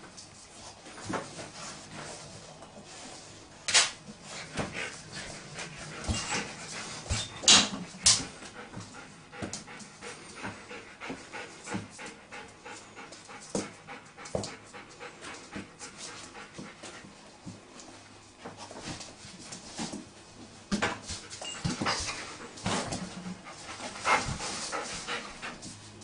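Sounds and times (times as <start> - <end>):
dog panting: 4.2 - 17.2, 21.2 - 26.0.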